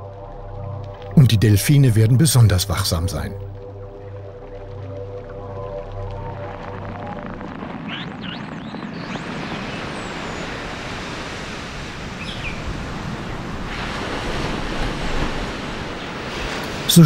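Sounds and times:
rushing water: 0.0 - 17.0
surf breaking on shore: 6.1 - 17.0.

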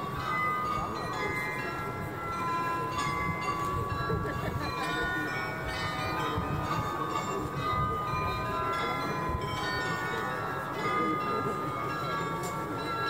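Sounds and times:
bells chiming: 0.0 - 13.0.

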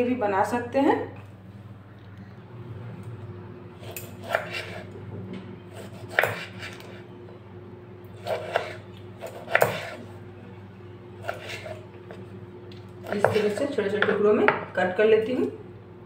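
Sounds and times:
knife chopping on wooden board: 4.0 - 4.8, 5.8 - 6.9, 8.2 - 10.0, 13.0 - 14.6.

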